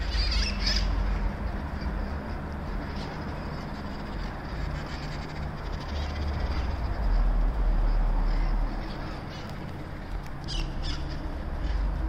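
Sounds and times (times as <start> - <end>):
parrots squawking: 0.0 - 2.2, 2.8 - 7.3, 7.9 - 9.6, 10.5 - 11.8
steady low rumble: 0.0 - 12.0.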